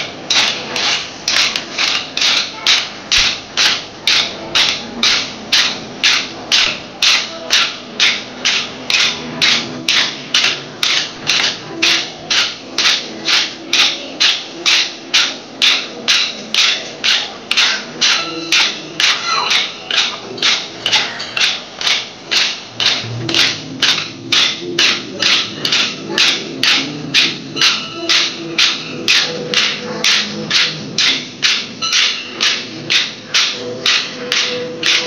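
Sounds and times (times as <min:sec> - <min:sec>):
wooden sticks clacking together: 0:00.0 - 0:35.0.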